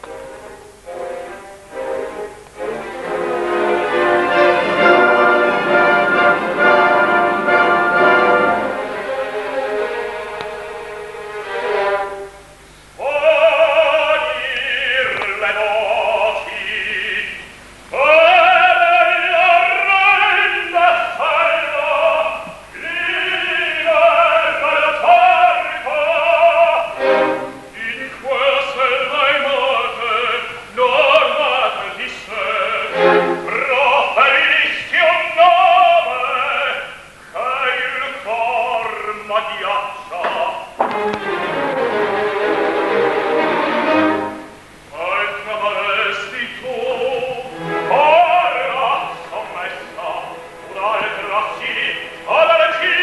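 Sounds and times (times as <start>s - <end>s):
orchestra playing: 0.0s - 12.6s, 22.8s - 29.1s, 32.3s - 36.1s, 40.9s - 44.8s, 47.2s - 53.0s
operatic tenor singing: 0.0s - 53.0s.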